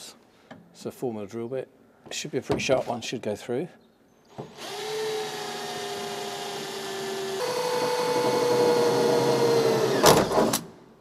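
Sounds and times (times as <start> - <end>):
cordless drill drilling into metal: 4.5 - 10.7.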